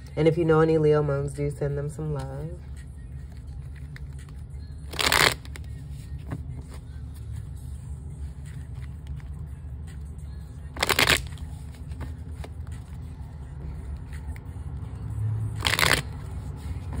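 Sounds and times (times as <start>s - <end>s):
cards shuffling: 2.0s - 7.6s, 8.2s - 9.5s, 10.7s - 14.4s, 15.5s - 17.0s.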